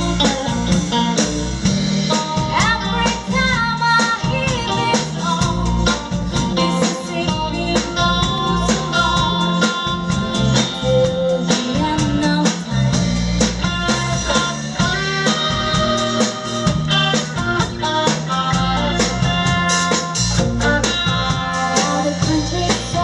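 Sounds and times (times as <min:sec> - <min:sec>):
acoustic and electric guitars: 0:00.0 - 0:23.0
drum kit: 0:00.0 - 0:23.0
woman singing: 0:02.4 - 0:10.0, 0:10.6 - 0:13.2, 0:21.5 - 0:23.0.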